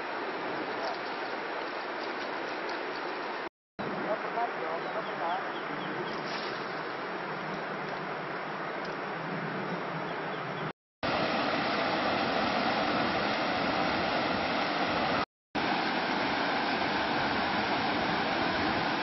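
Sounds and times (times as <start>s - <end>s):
river water cascading over rocks: 11.0s - 19.0s.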